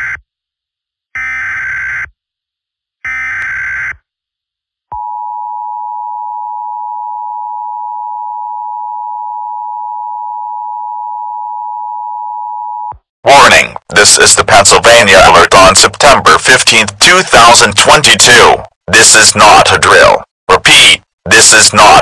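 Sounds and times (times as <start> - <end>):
long steady attention tone: 4.9 - 16.2.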